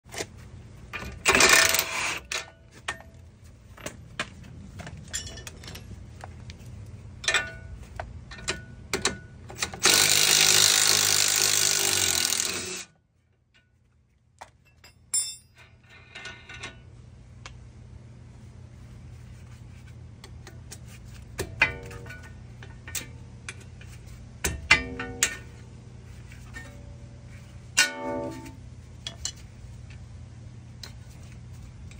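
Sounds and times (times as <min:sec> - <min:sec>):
impact wrench hammering: 0:27.8 - 0:28.6.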